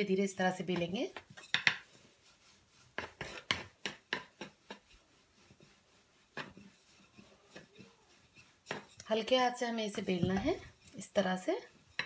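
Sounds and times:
rolling pin knocking on worktop: 0.7 - 1.9, 3.0 - 4.8, 8.6 - 9.0, 10.1 - 10.7.

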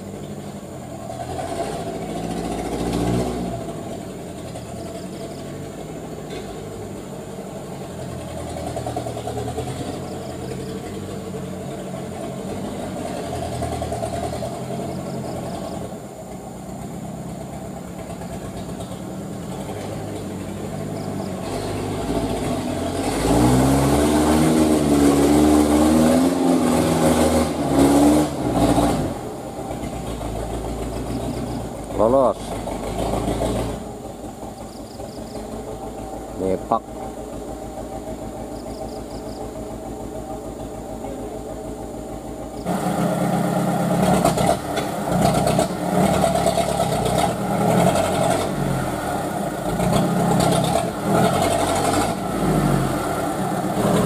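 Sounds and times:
diesel truck engine labouring: 0.0 - 54.0.

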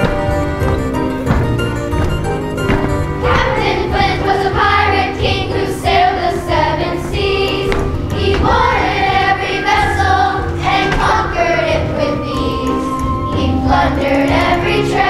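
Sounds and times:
instrumental accompaniment with bass: 0.0 - 15.0
children's choir singing: 3.2 - 15.0.

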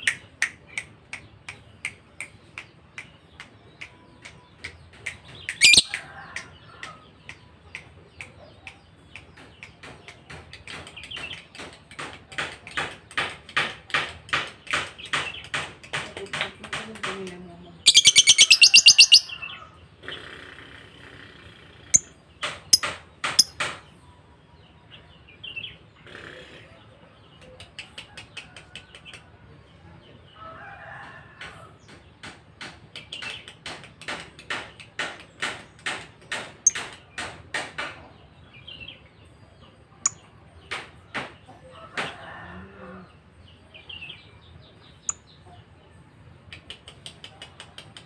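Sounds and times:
bird chirping: 2.8 - 6.0, 17.8 - 19.7, 21.9 - 23.7
bird rapid trill: 5.5 - 6.0, 17.9 - 19.4.

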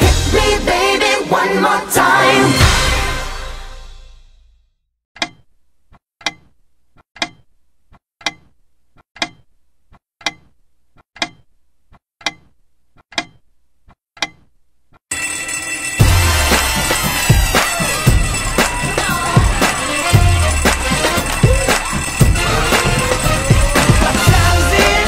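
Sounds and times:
loud music: 0.0 - 4.0, 16.0 - 25.0
wall clock ticking: 7.2 - 7.5, 9.2 - 9.5, 16.0 - 25.0.

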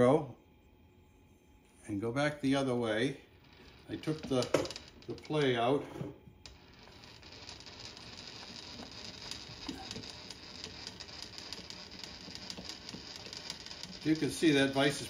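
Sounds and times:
milling table feed clicking: 3.4 - 5.6, 6.4 - 15.0.

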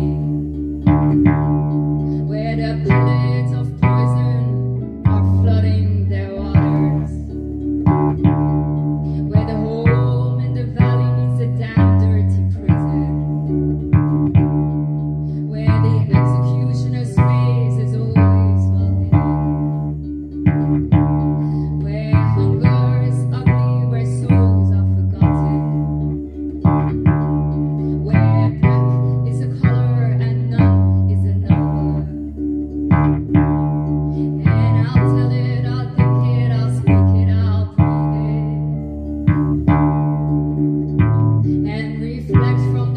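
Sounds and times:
plucked low ukulele bass notes: 0.0 - 42.9.

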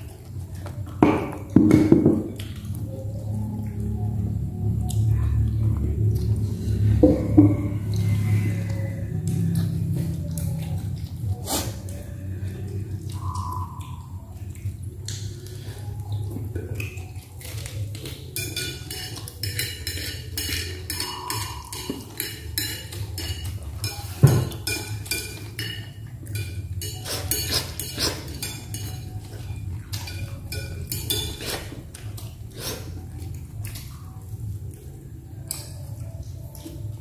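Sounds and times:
low hum: 2.2 - 18.3
cutlery clinking on plates: 16.8 - 32.2.

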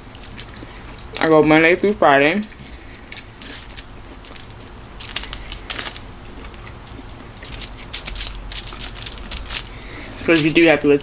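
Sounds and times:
chewing food: 0.0 - 1.3, 2.5 - 10.4
plastic fork scraping on foil: 3.4 - 10.7.

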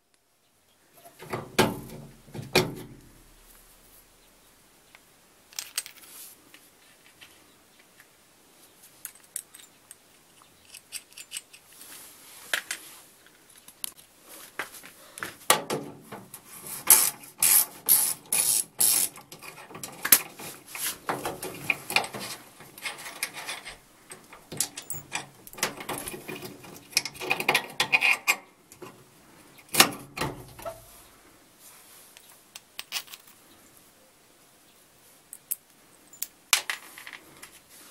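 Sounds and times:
ratchet wrench clicking: 16.9 - 19.1
metal bolts clinking: 21.1 - 29.0.

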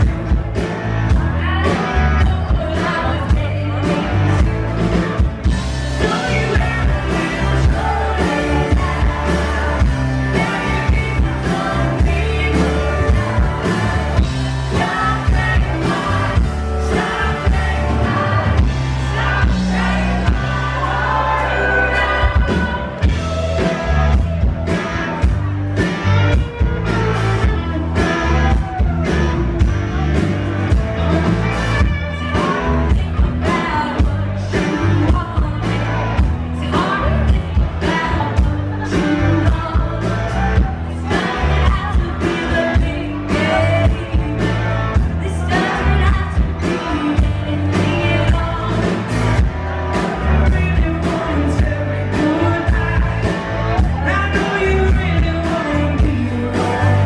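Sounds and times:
steady drum beat: 0.0 - 21.2, 22.2 - 57.0
bass guitar: 0.0 - 57.0
electric guitar: 0.0 - 57.0
man and woman singing: 5.9 - 24.1, 32.2 - 49.2, 50.2 - 57.0.

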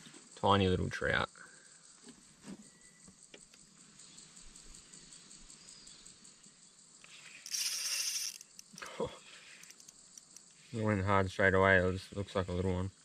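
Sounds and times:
insect chirring: 0.0 - 13.0
fishing reel buzzing: 7.2 - 10.5.

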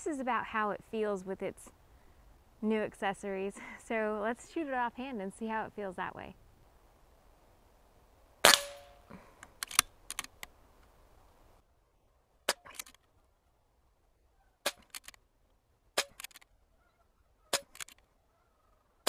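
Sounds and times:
air rifle shots: 8.4 - 8.9
pellets striking steel targets: 8.4 - 9.0.

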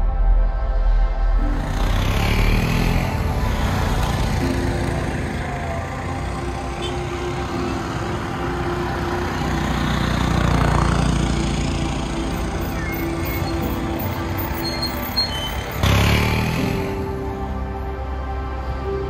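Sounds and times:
vehicle engines running: 1.4 - 18.9
vehicle passing: 1.6 - 17.5.

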